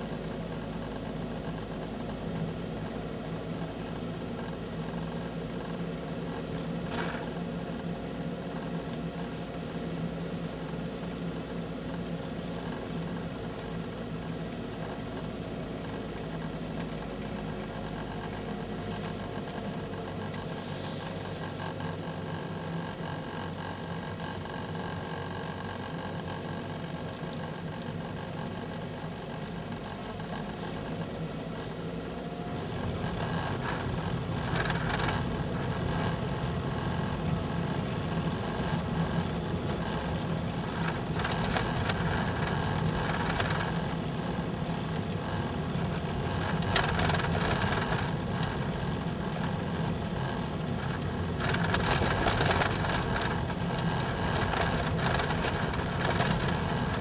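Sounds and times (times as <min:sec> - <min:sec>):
road noise: 0:00.0 - 0:57.0
vehicle engine running: 0:00.0 - 0:57.0.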